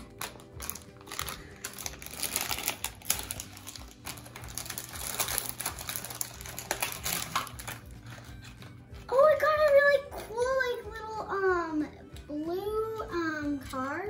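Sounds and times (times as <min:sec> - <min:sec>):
foil wrapper crinkling: 0:00.0 - 0:10.3.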